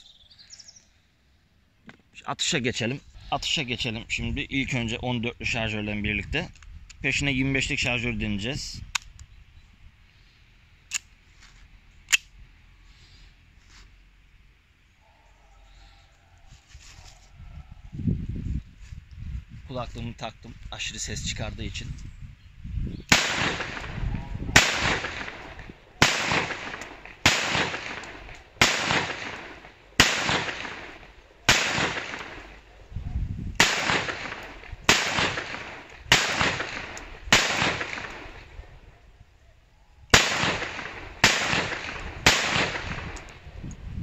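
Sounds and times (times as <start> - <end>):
blank pistol shots: 23.1 - 32.7, 33.6 - 38.6, 40.1 - 43.4.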